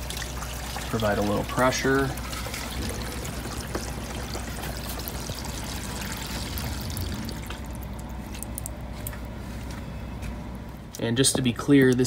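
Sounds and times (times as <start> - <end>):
water pouring into kayak hull: 0.0 - 7.9
water trickling: 0.0 - 8.8.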